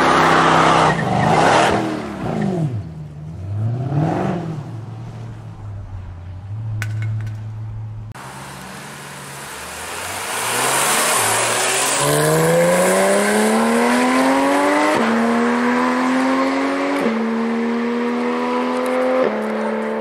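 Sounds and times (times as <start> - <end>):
car engine accelerating hard: 8.2 - 20.0.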